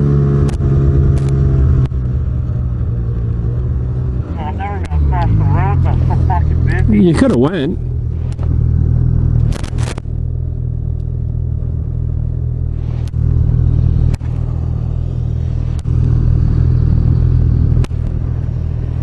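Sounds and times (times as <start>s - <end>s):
snowmobile engine idling: 2.6s - 8.6s.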